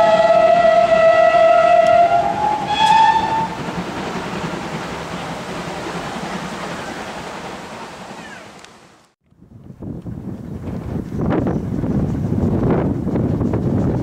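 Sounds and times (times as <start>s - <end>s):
train whistle: 0.0s - 3.7s
train rumbling: 0.0s - 14.0s.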